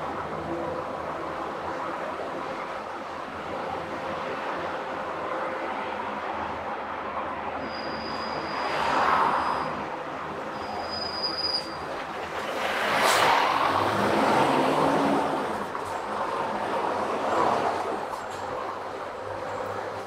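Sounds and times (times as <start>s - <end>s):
tyre and wind road noise: 0.0s - 20.0s
vehicles passing: 0.0s - 20.0s
thin high whistle: 7.6s - 9.8s, 10.6s - 11.8s.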